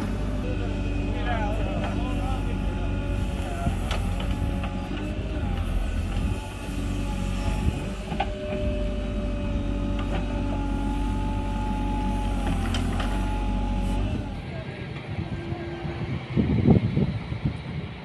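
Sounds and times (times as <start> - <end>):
diesel engine running under load: 0.0 - 18.0.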